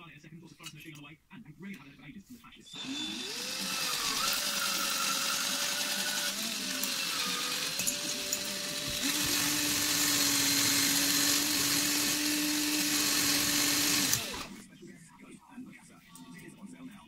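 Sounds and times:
cordless drill whining: 2.7 - 14.6.

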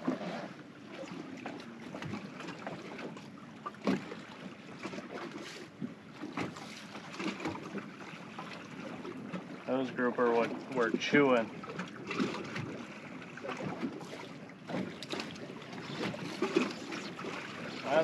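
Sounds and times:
water lapping against hull: 0.0 - 18.0.

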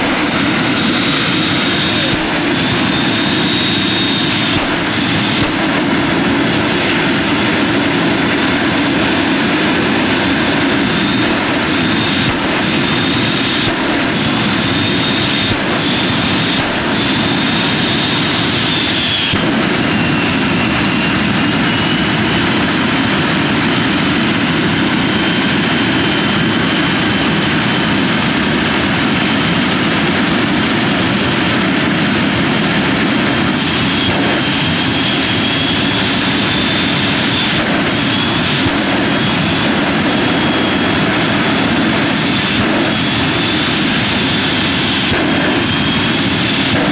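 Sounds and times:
sharp cracks: 0.0 - 8.4, 10.6 - 19.9
jet engine roar: 0.0 - 46.9.

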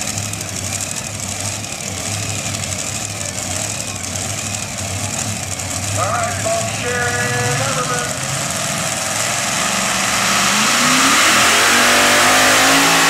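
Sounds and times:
tractor engine idling rumble: 0.0 - 10.1.

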